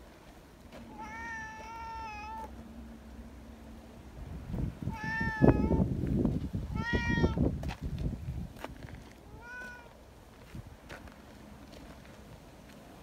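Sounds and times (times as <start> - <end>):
cat meowing: 0.9 - 2.5, 4.9 - 5.8, 6.7 - 7.4, 9.3 - 9.9.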